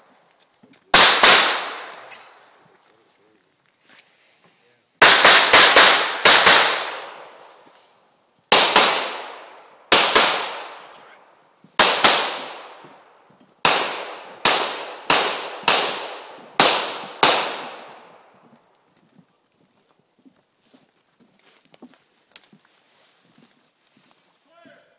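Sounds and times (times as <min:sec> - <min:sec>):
pistol shots echoing: 0:00.9 - 0:02.5, 0:05.0 - 0:07.3, 0:08.5 - 0:11.1, 0:11.8 - 0:13.0, 0:13.6 - 0:18.4.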